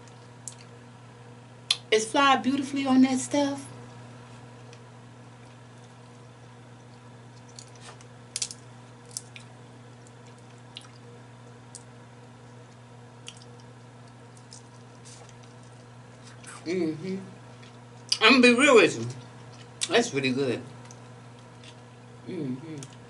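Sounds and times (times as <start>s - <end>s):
steady low hum: 0.0s - 23.0s
crab shell clicks and squishes: 7.4s - 11.0s, 11.7s - 11.9s.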